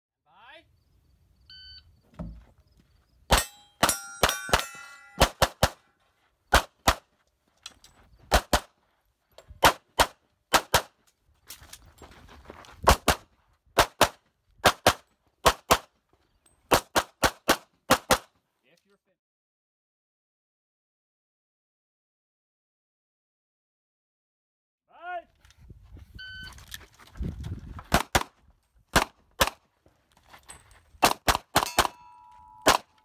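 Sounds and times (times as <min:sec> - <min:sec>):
steel targets ringing: 0:03.3 - 0:05.4, 0:31.6 - 0:33.0.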